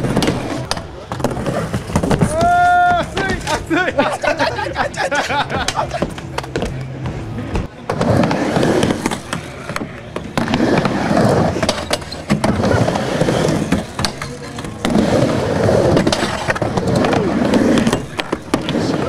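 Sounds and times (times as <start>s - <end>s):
skateboard wheels rolling on ramp: 0.0s - 4.4s, 5.6s - 19.0s
skateboard clacks: 5.5s - 19.0s.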